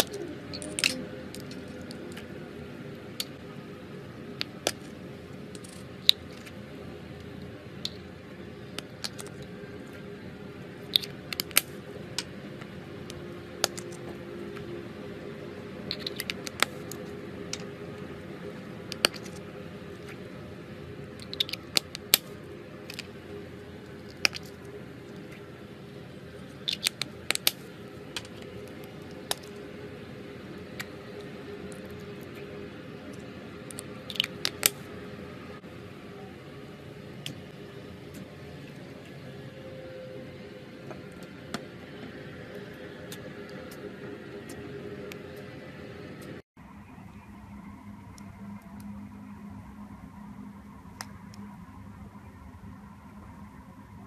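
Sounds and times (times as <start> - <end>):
plastic cups clicking: 0.0 - 2.3
faint steady hum: 0.0 - 54.0.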